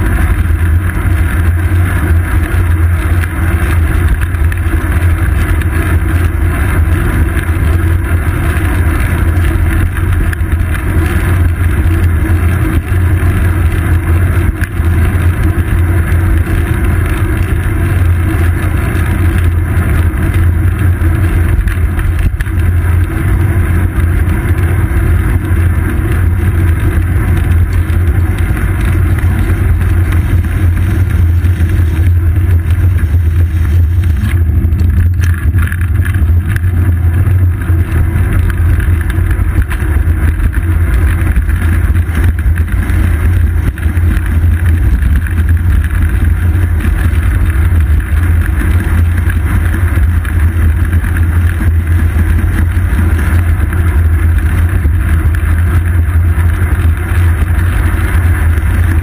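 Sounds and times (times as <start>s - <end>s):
wind and road rumble: 0.0s - 59.0s.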